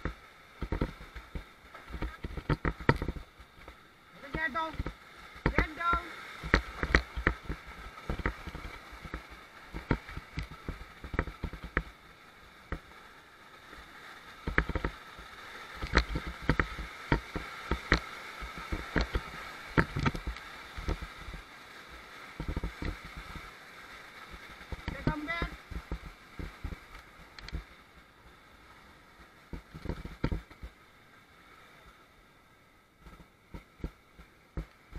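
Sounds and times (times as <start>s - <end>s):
whitewater rapids rushing: 3.9s - 11.6s, 13.8s - 27.9s.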